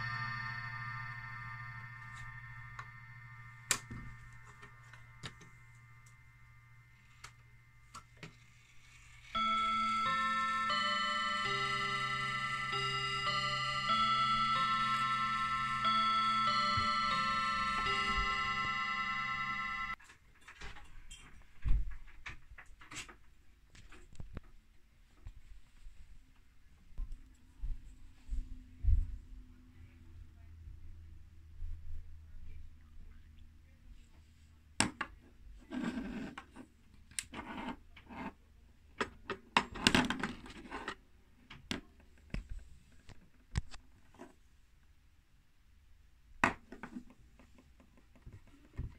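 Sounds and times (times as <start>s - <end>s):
clock gongs chiming: 0.0s - 7.1s, 9.4s - 20.0s.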